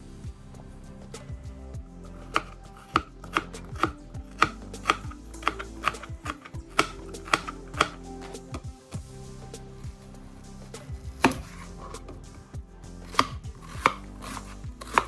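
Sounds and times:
knife chopping on plastic board: 2.3 - 8.0, 11.0 - 12.2, 13.0 - 15.0.

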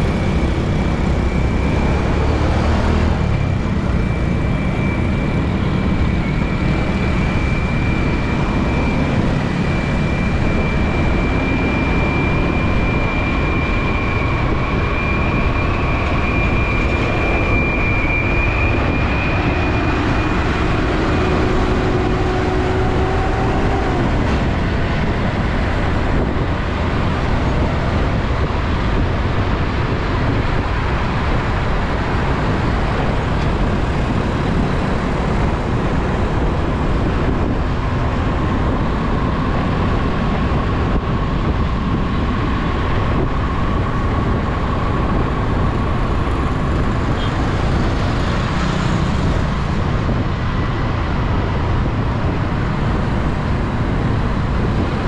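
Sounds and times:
road traffic rumble: 0.0 - 55.0.

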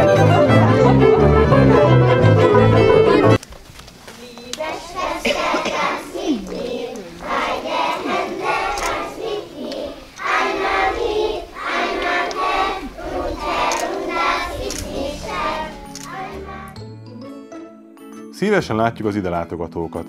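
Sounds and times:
children singing in chorus: 4.6 - 16.8.

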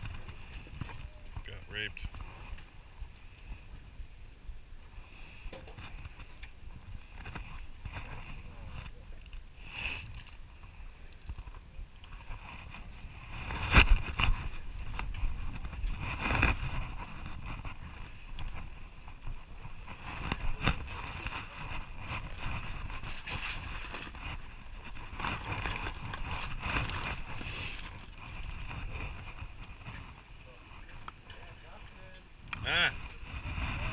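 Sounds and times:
boat rumble and hiss: 2.0 - 13.3.

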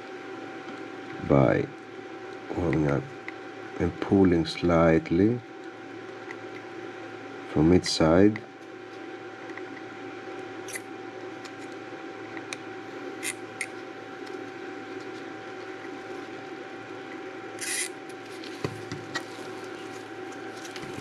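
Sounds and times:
electrical hum: 0.0 - 21.0
desoldering iron hissing: 17.6 - 18.0.

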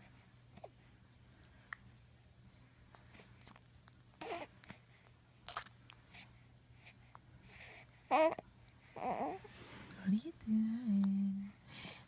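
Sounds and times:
baby babbling: 8.1 - 8.4, 9.0 - 9.4.

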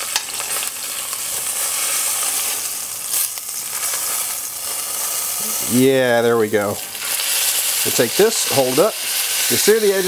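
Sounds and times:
fish sizzling in a frying pan: 0.0 - 10.0.

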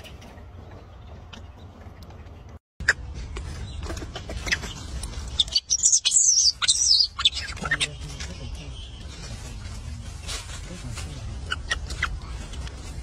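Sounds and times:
macaque squealing: 5.4 - 8.0, 11.4 - 12.3.

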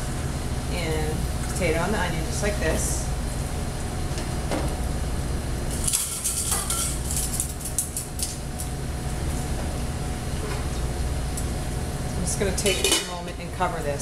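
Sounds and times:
low hum: 0.0 - 6.2.

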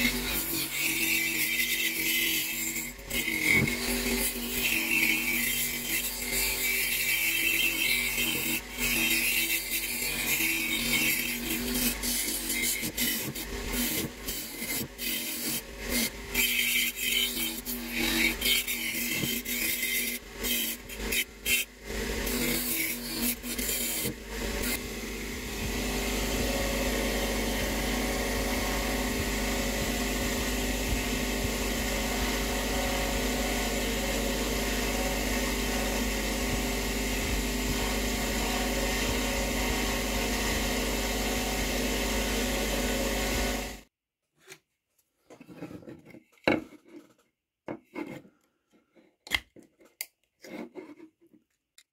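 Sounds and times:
screwdriver scrapes and clicks: 0.0 - 24.8, 49.2 - 51.4
wire wheel scratching steel: 0.0 - 24.8
bench grinder motor running: 0.0 - 43.8.

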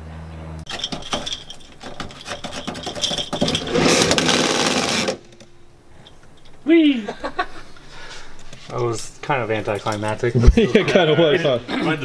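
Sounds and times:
seatbelt rattling and scraping: 0.7 - 5.3.

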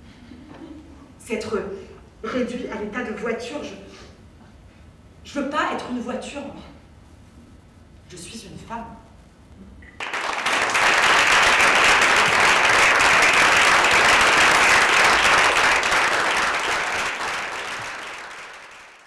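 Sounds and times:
audience applauding: 10.0 - 19.0.

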